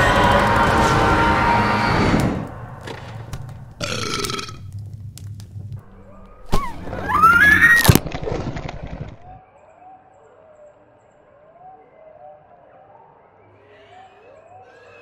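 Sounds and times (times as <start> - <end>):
sharp crack: 0.1 - 9.4
rising wavering cartoon cry: 6.5 - 8.0.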